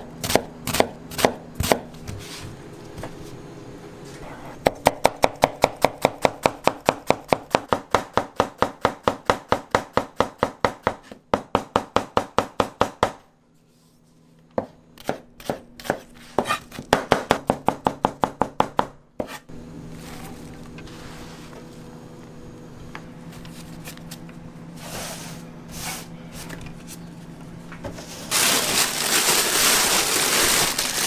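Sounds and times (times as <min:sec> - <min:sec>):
knife chopping on cutting board: 0:00.2 - 0:02.2, 0:14.6 - 0:19.5
steady hum: 0:18.9 - 0:31.0.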